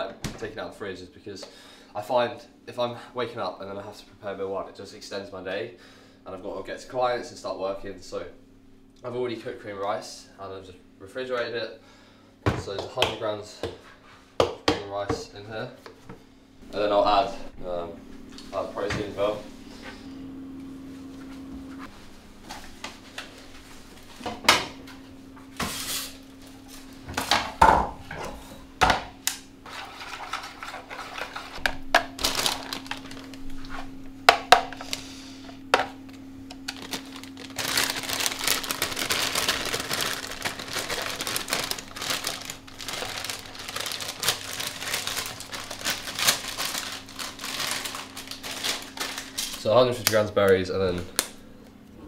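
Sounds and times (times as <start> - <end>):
faint steady hum: 0.0 - 52.0
plastic bag rustling: 29.6 - 34.0, 36.4 - 50.3.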